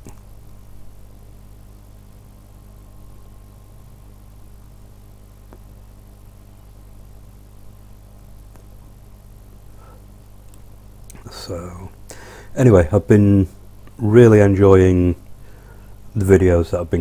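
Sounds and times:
faint clicks: 0:00.0 - 0:00.3, 0:05.4 - 0:05.7, 0:08.4 - 0:08.7, 0:10.4 - 0:11.3
low electrical hum: 0:00.0 - 0:17.0.

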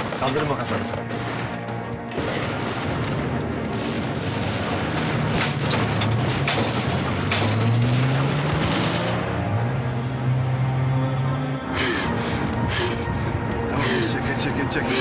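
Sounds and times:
pistol gunfire volley: 0:00.0 - 0:08.0
dramatic music score: 0:00.0 - 0:15.0.

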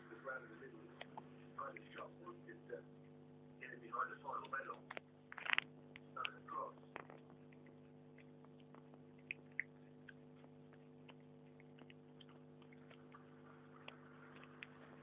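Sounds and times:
electrical hum: 0:00.0 - 0:15.0
small pet chewing clicks: 0:04.4 - 0:15.0.

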